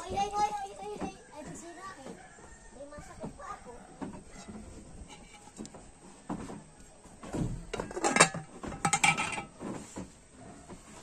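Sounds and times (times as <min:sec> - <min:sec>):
lid clattering on metal pot: 0:05.0 - 0:05.6, 0:07.7 - 0:09.6.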